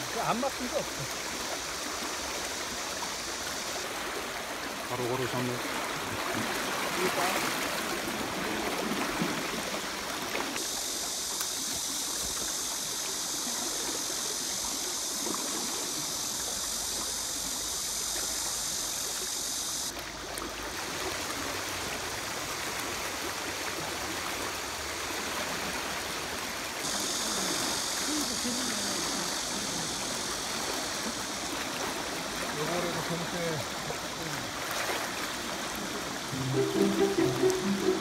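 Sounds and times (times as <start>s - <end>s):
river water rushing: 0.0s - 14.8s, 30.0s - 38.0s.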